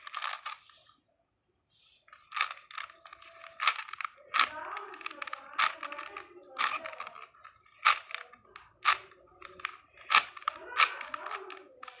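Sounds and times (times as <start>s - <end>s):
puzzle cube layers clicking: 0.0s - 0.9s, 2.1s - 12.0s.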